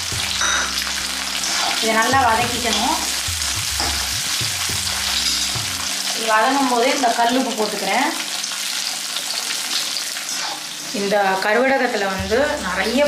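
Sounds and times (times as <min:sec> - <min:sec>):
vegetables sizzling in hot oil: 0:00.0 - 0:13.0
person's voice: 0:01.8 - 0:03.2, 0:11.0 - 0:13.0.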